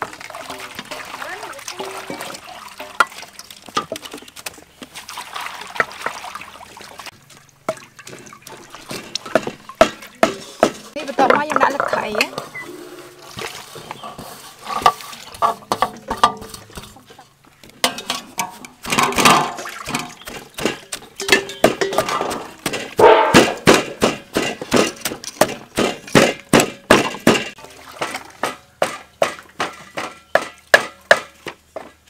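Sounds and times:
pestle pounding in mortar: 0:07.7 - 0:11.8, 0:18.8 - 0:27.6, 0:28.4 - 0:32.0
metal tray clinking: 0:21.2 - 0:23.7.

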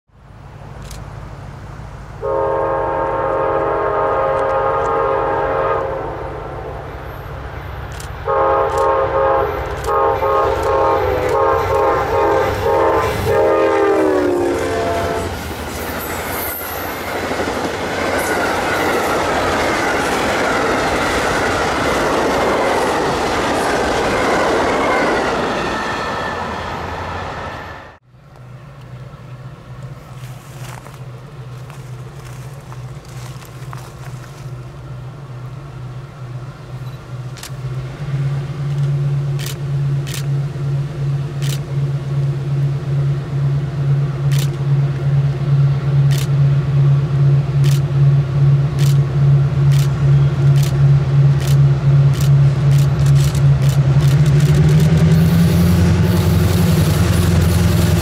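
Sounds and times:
train air horn blasts: 0:02.2 - 0:07.2, 0:08.2 - 0:15.4
diesel engine rumble: 0:26.9 - 0:58.0.

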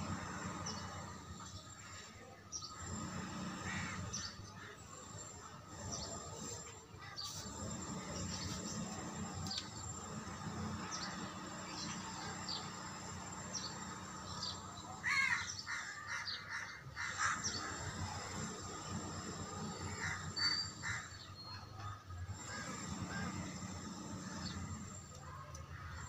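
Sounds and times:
crows cawing: 0:15.0 - 0:18.4, 0:19.7 - 0:21.3.

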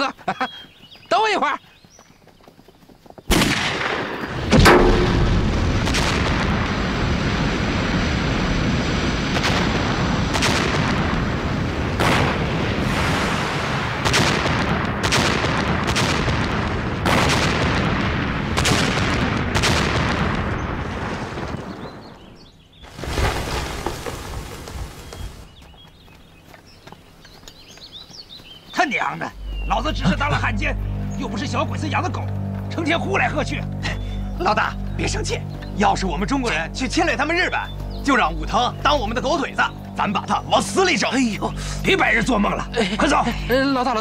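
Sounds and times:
explosions and gunshots: 0:03.3 - 0:22.2
continuous rumble: 0:29.4 - 0:44.0.

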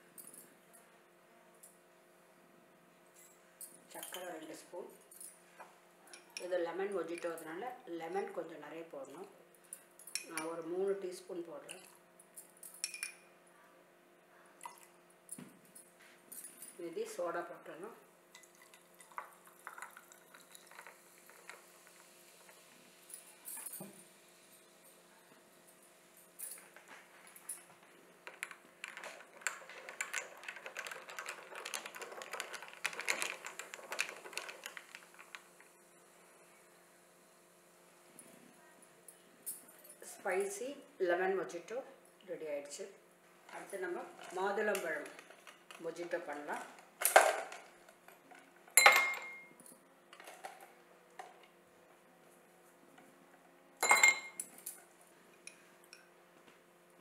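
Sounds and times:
spoon clinking ice in a glass: 0:12.4 - 0:13.3, 0:48.8 - 0:50.4, 0:53.8 - 0:54.8.

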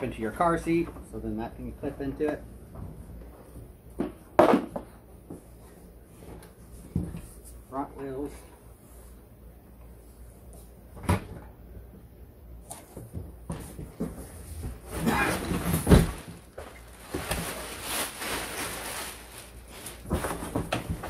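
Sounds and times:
plastic wrapping rustling: 0:14.8 - 0:21.0.

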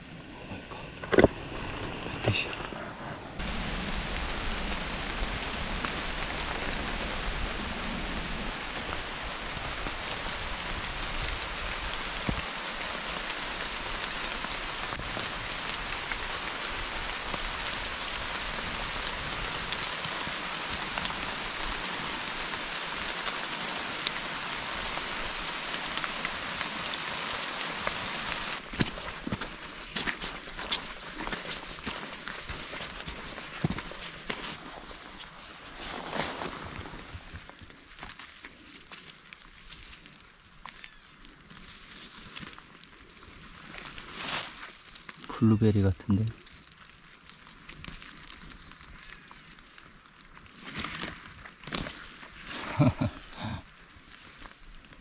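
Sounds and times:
steady rain hiss: 0:03.4 - 0:55.0
raindrops ticking: 0:08.5 - 0:34.6, 0:52.5 - 0:55.0.

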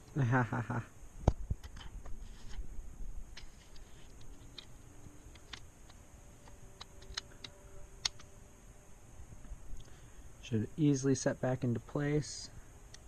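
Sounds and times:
plastic fan housing clicking: 0:01.2 - 0:02.6, 0:03.3 - 0:08.3.

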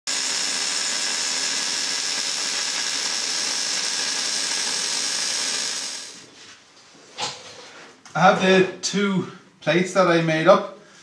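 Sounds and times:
arc welding sizzling hiss: 0:00.1 - 0:06.2.

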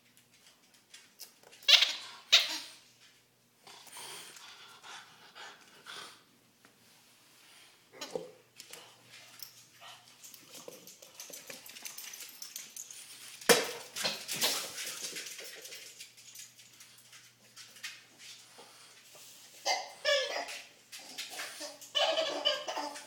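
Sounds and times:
dogs scuffling on wooden floor: 0:08.6 - 0:23.0.

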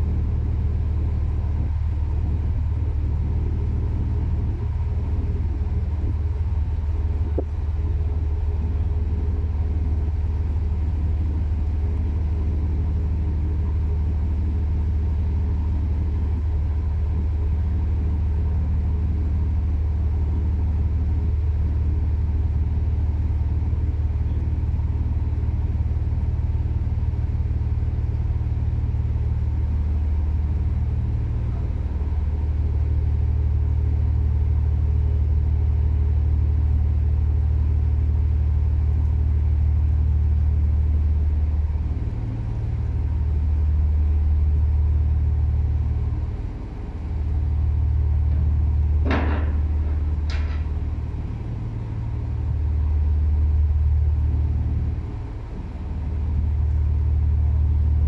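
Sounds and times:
diesel engine droning: 0:00.0 - 0:58.0
small click: 0:48.3 - 0:50.7.

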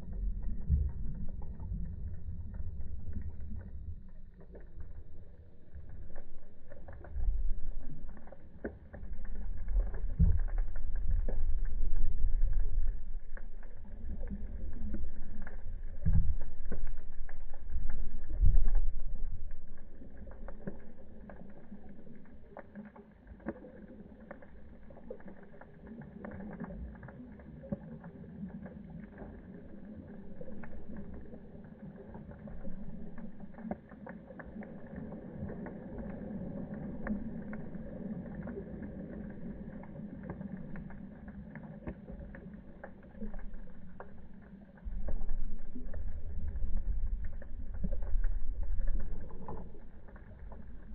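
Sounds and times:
muffled underwater surf rumble: 0:00.0 - 0:22.6, 0:34.6 - 0:50.9
crackling clicks: 0:00.0 - 0:50.9.

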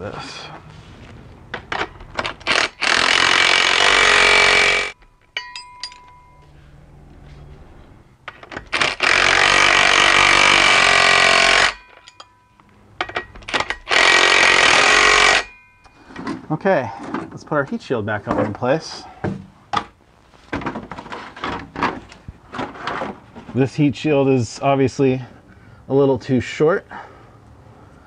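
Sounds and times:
impact wrench driving bolts: 0:01.6 - 0:06.2, 0:08.3 - 0:12.3, 0:13.0 - 0:15.5.

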